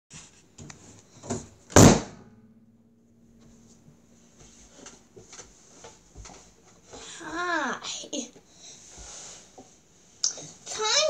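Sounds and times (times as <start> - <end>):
faint low hum: 0.4 - 11.0
loud thump with ring-out: 1.3 - 2.7.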